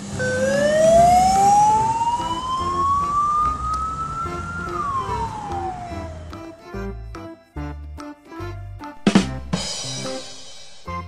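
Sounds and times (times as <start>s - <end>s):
ambulance siren wailing: 0.0s - 6.6s.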